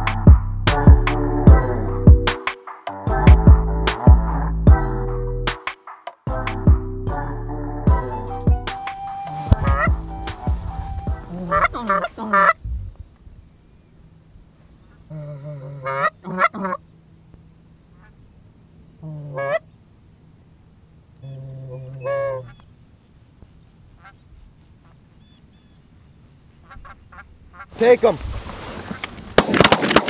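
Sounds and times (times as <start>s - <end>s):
goose call honking: 9.1s - 12.6s, 15.6s - 16.8s, 19.2s - 19.6s, 21.2s - 22.6s.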